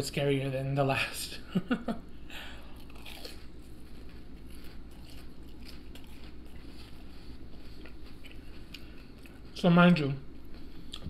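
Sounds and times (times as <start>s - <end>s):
person chewing food: 2.4s - 9.6s, 10.4s - 11.0s.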